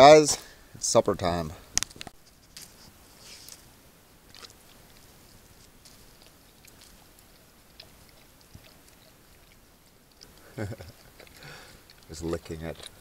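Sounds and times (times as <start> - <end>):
dog licking: 4.4 - 13.0.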